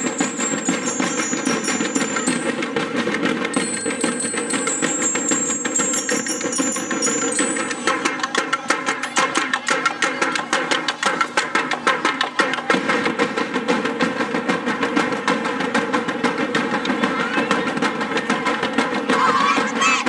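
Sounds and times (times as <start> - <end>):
bell-like ringing tones: 0.0 - 2.8, 3.5 - 9.0
fast dense drumming: 0.0 - 20.0.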